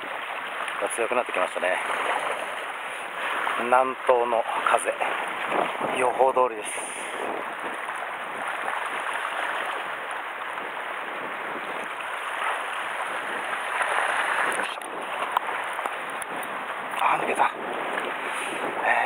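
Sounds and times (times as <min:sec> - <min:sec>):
sea water splashing on rocks: 0:11.6 - 0:18.8.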